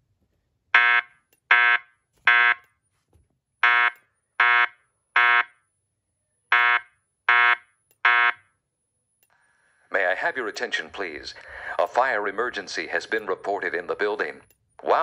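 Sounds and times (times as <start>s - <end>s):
fire alarm beeps: 0.8s - 2.8s, 3.6s - 9.2s.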